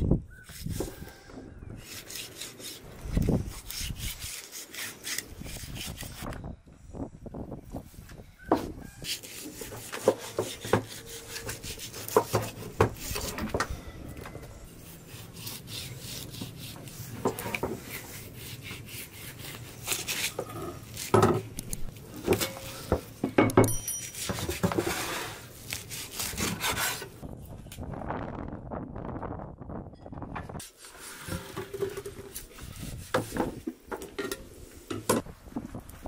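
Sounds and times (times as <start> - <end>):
knife scraping through meat: 1.8 - 6.3, 9.0 - 13.5, 14.8 - 21.2, 24.0 - 27.2.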